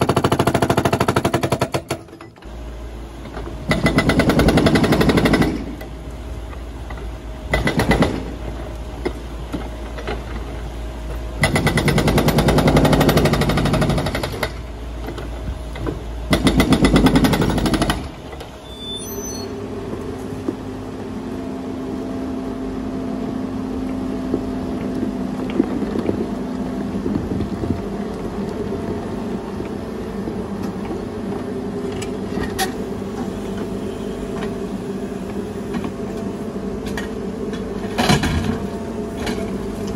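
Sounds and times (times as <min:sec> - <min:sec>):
hydraulic breaker hammering concrete: 0:00.0 - 0:02.2, 0:03.6 - 0:05.8, 0:07.5 - 0:08.3, 0:11.4 - 0:14.6, 0:16.3 - 0:18.2
excavator engine running: 0:00.0 - 0:39.9.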